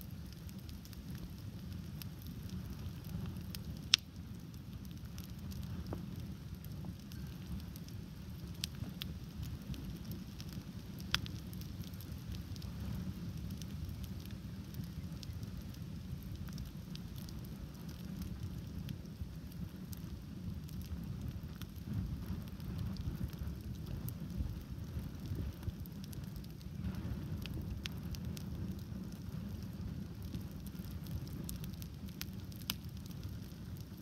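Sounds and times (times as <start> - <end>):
campfire flames rushing: 0.0 - 34.0
fire crackling and popping: 0.0 - 34.0.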